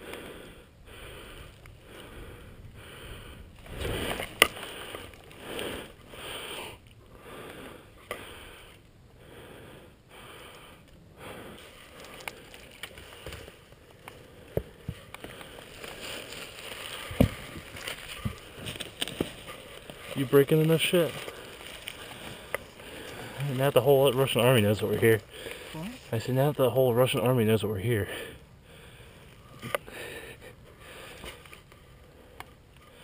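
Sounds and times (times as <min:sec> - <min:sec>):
dry leaves rustling and crunching: 0:11.6 - 0:13.7, 0:15.2 - 0:26.2.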